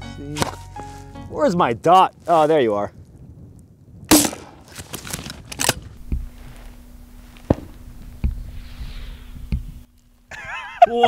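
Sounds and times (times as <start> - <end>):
grenade launcher firing: 4.1 - 5.9
dull low thuds: 5.8 - 9.9.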